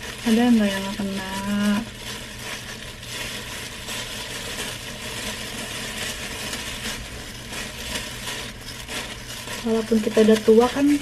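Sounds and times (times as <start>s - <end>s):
gloved hands rustling in wet hair: 0.0s - 11.0s.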